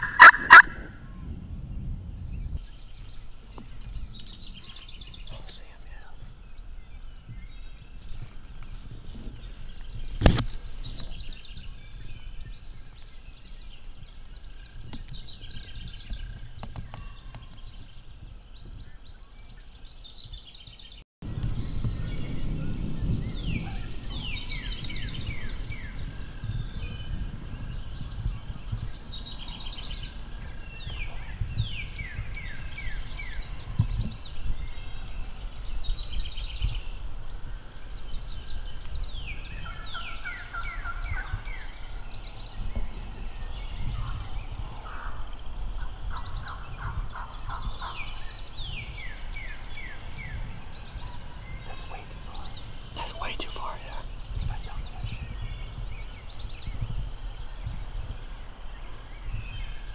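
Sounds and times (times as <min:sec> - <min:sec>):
turkeys gobbling: 0:00.0 - 0:00.9.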